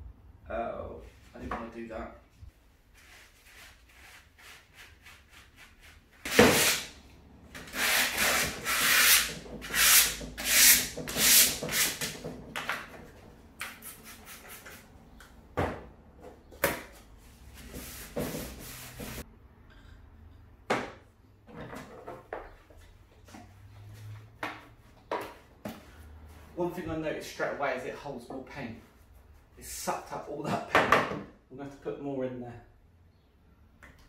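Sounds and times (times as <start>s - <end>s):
hand sanding wood: 7.6s - 12.2s, 17.5s - 19.2s.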